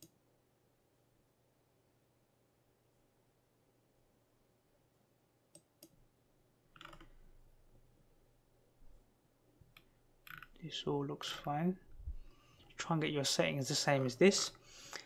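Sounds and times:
computer mouse clicks: 5.5 - 6.0, 6.8 - 7.2.

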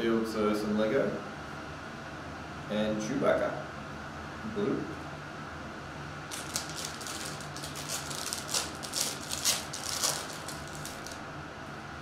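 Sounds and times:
foil wrapper crinkling and tearing: 6.3 - 11.2.

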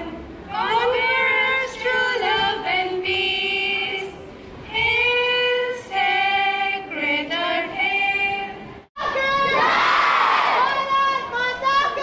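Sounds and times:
girls singing in unison: 0.0 - 8.7.

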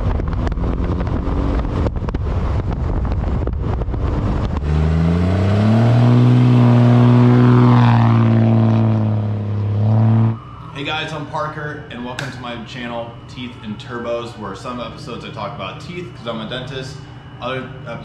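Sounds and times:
heavy wind noise: 0.0 - 10.4
diesel truck engine: 0.0 - 11.0.

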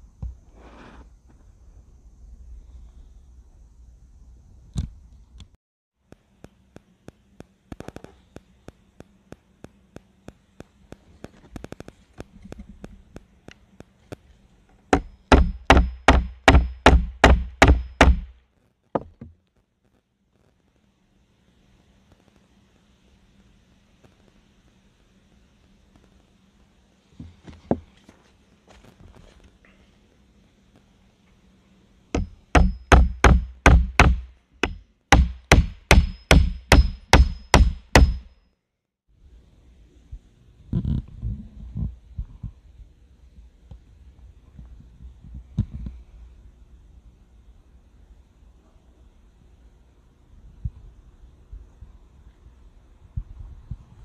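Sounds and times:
hammer striking nail: 14.9 - 18.4, 32.2 - 38.3.

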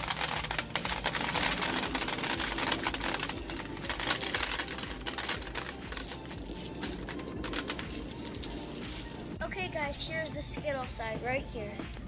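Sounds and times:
gumballs clattering into machine: 0.0 - 9.3.

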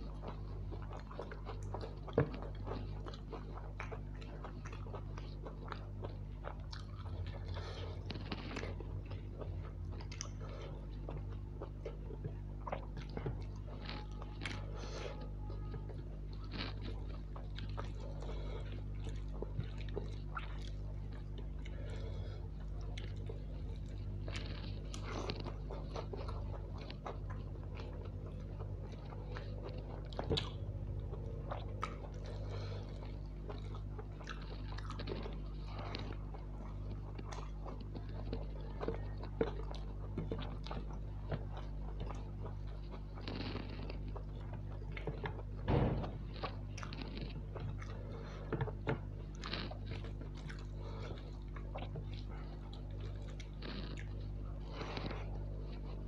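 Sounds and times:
man chewing food: 0.0 - 56.0
steady low hum: 0.0 - 56.0.

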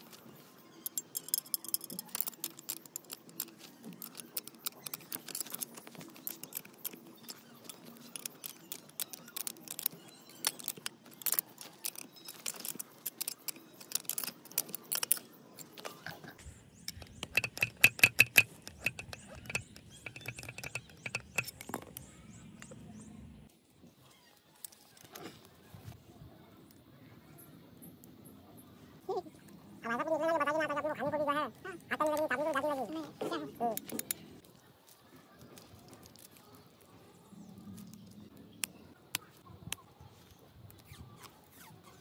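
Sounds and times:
metal clicking and clinking: 0.0 - 16.2, 16.8 - 22.8, 31.4 - 37.0.

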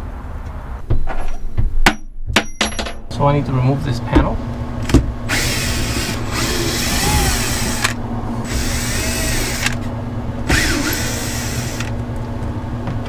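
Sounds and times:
cordless drill running: 5.3 - 9.9, 10.5 - 12.0.

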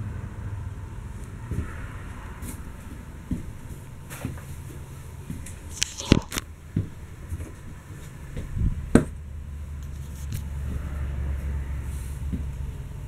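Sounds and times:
steady low rumble: 0.0 - 13.0
footsteps: 1.3 - 8.7
camera handling noise: 5.7 - 6.5.

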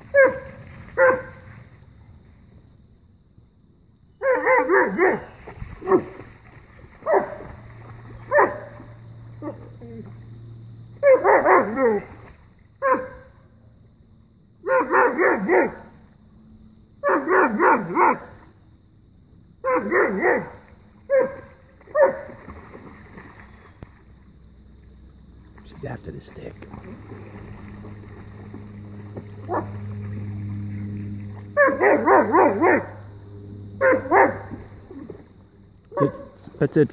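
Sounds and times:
dog barking: 0.2 - 0.4, 1.0 - 1.3, 4.2 - 5.2, 7.0 - 7.4, 8.3 - 8.8, 11.0 - 12.0, 12.8 - 13.3, 14.6 - 15.8, 17.0 - 18.3, 19.6 - 22.3, 31.6 - 33.0, 33.8 - 34.5, 35.9 - 36.4.

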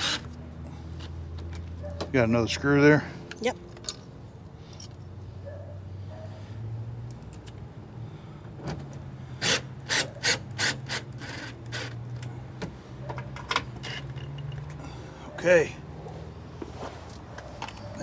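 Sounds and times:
drill driving screw: 0.0 - 0.3.

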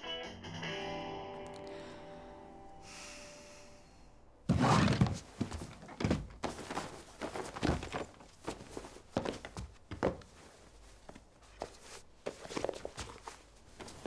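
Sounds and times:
guitar song: 0.0 - 3.6
soft thumps and knocks: 4.5 - 14.0.

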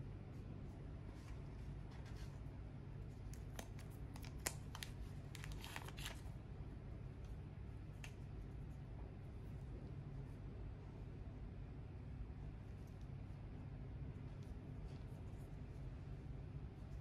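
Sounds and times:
steady low hum: 0.0 - 17.0
plastic packaging clicks and crinkles: 3.3 - 6.3.

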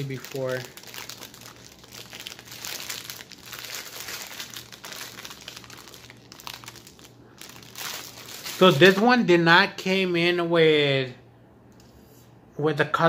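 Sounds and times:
plastic wrapping crinkling: 0.0 - 9.2.

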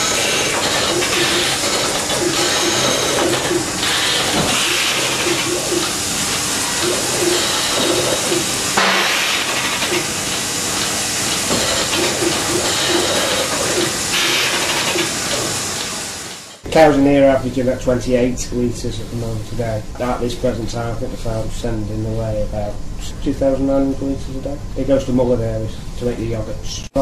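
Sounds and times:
milking machine hissing: 0.0 - 16.7.

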